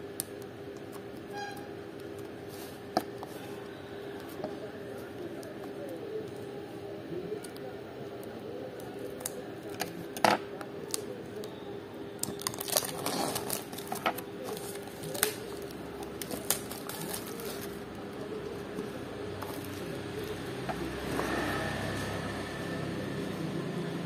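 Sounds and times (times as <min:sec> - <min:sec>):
plastic shrink wrap crackling: 0:12.2 - 0:20.6.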